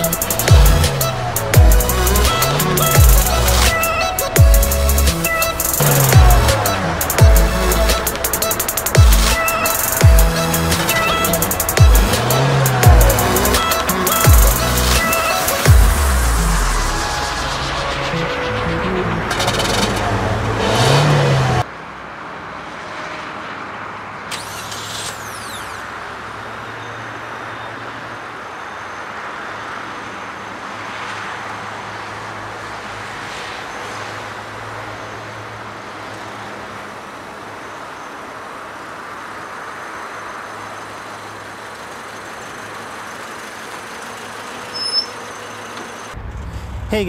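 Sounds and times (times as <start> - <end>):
electronic dance music: 0.0 - 21.6
low drone: 0.0 - 21.7
low vehicle rumble: 0.0 - 21.8, 38.4 - 47.0.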